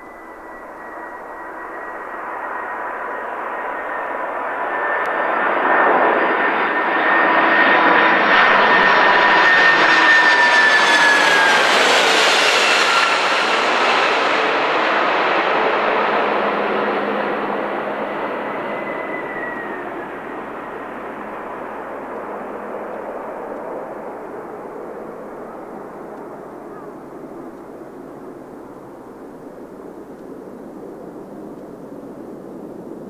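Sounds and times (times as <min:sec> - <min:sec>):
jet plane flying low overhead: 0:00.0 - 0:33.0.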